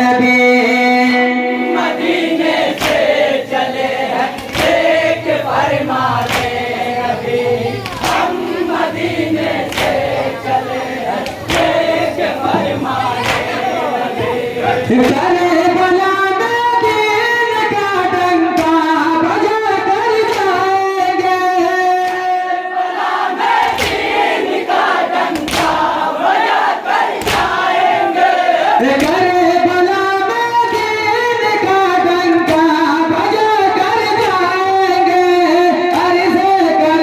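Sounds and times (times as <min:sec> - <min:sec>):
men chanting together: 0:01.0 - 0:21.3, 0:22.0 - 0:37.0
hands slapping bare chests: 0:02.7 - 0:05.6, 0:06.2 - 0:06.8, 0:07.8 - 0:08.4, 0:09.6 - 0:10.2, 0:11.2 - 0:12.6, 0:13.2 - 0:13.6, 0:18.6 - 0:18.9, 0:23.6 - 0:24.2, 0:25.3 - 0:25.9, 0:27.1 - 0:27.7.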